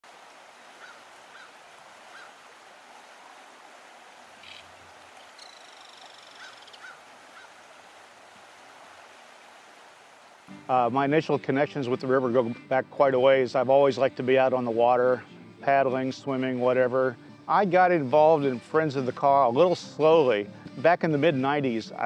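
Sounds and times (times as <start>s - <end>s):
background hiss: 0.0s - 22.0s
short bird calls: 0.8s - 2.4s, 4.4s - 7.6s
rapid bird trill: 4.4s - 7.5s.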